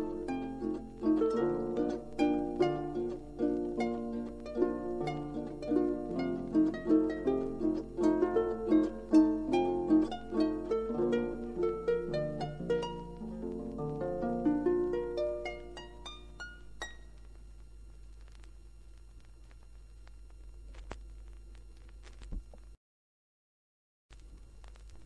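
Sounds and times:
solo harp folk tune: 0.0 - 17.1
faint low hum: 0.0 - 22.8, 24.1 - 25.0.

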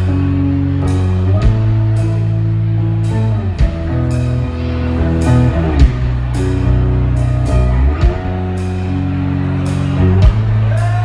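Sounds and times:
electric guitars holding chords: 0.0 - 11.0
drum and cymbal hits: 5.8 - 6.5.

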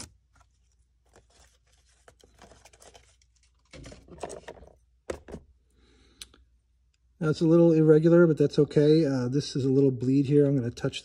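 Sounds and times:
rustling and scraping of tools: 0.0 - 5.4.

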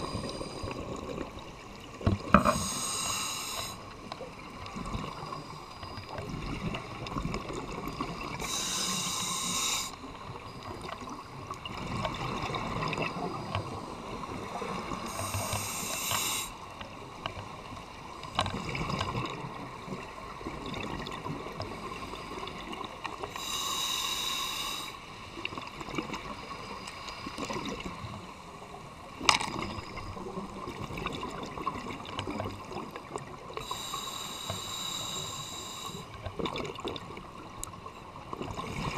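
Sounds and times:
bubbling and gurgling: 0.0 - 2.8, 3.7 - 8.5, 9.9 - 16.0, 16.7 - 23.3, 27.4 - 33.7, 36.1 - 38.9
regulator breath hissing: 2.4 - 3.9, 8.4 - 10.1, 15.0 - 16.6, 23.3 - 25.0, 33.6 - 36.1.

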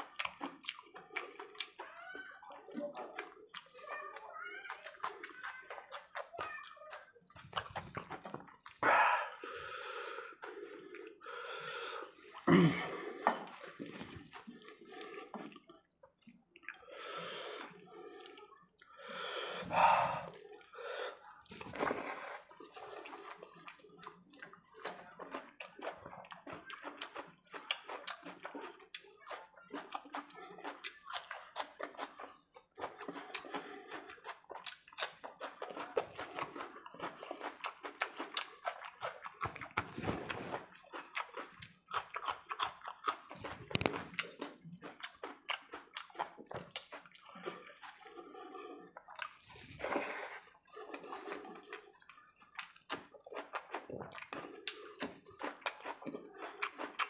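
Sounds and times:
wet chewing and lip-smacking: 0.0 - 57.0.

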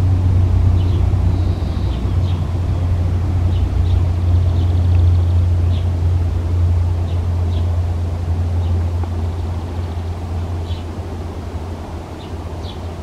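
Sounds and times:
steady low rumble: 0.0 - 13.0
faint high bird chirps: 0.8 - 2.8.

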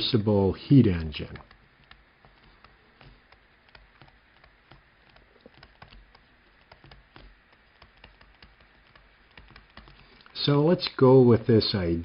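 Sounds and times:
low steady hiss: 0.0 - 12.0
stylus tapping on tablet screen: 1.0 - 10.3.

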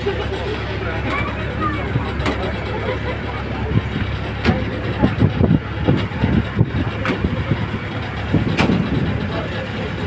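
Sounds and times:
boat engine droning: 0.0 - 10.0
wind buffeting microphone: 3.4 - 10.0.

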